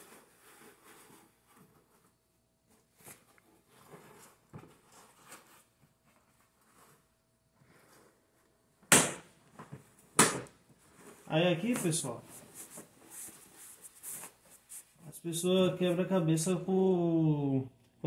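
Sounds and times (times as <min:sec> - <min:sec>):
faint rustling: 0:10.7 - 0:15.2.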